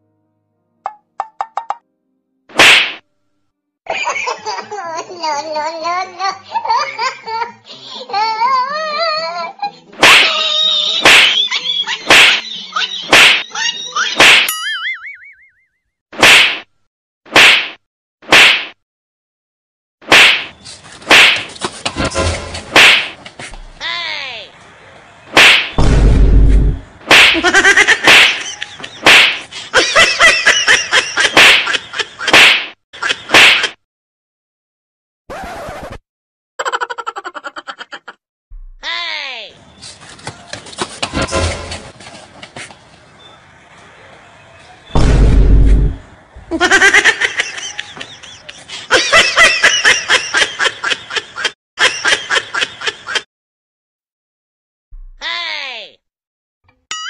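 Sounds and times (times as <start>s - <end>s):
stick blows cracking: 2.5s - 3.0s, 20.1s - 21.8s, 22.7s - 23.6s, 25.4s - 25.9s, 26.6s - 27.4s, 28.0s - 29.5s
high-pitched laughter: 10.2s - 14.2s, 36.6s - 38.2s, 46.5s - 53.2s
loud low thump: 25.8s - 26.9s, 45.0s - 46.0s.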